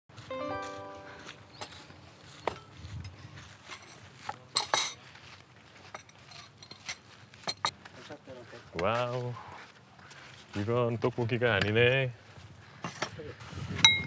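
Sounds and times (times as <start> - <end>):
dishes and glasses clinking: 1.5 - 5.0.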